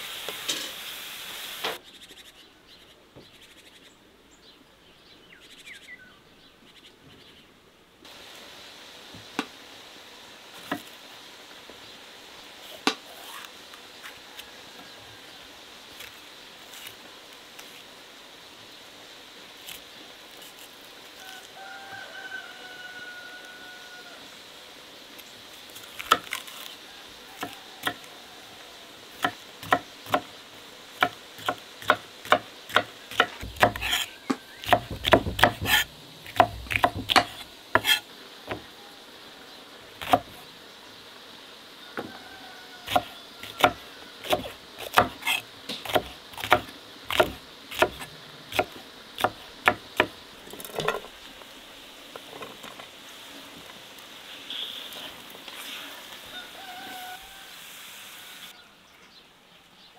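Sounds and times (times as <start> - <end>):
knife chopping on wooden board: 29.2 - 30.3, 31.0 - 38.7, 40.0 - 40.4, 42.9 - 50.2.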